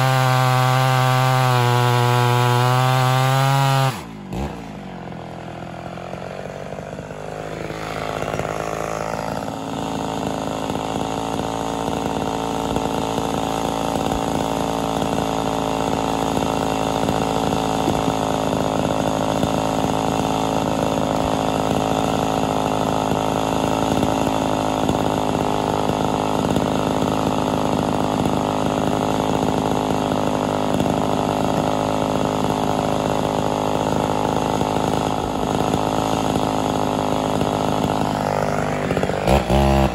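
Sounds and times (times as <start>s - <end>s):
chainsaw engine idling: 0.0s - 39.9s.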